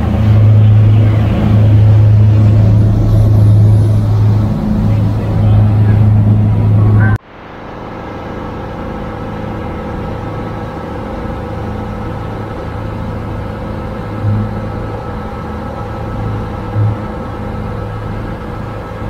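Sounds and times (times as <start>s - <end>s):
motorboat engine drone: 0.0s - 19.0s
wake and spray rushing: 0.0s - 19.0s.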